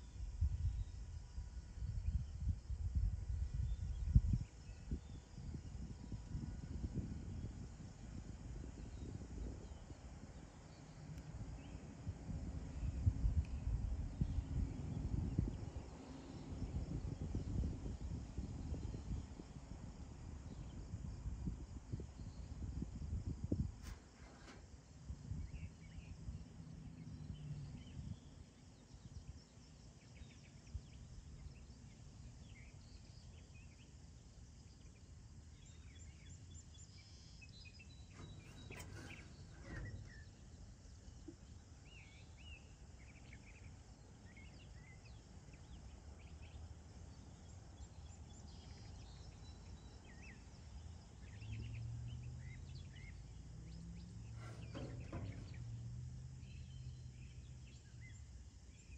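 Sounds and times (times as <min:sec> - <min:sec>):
faint low hum: 0:00.0 - 0:58.9.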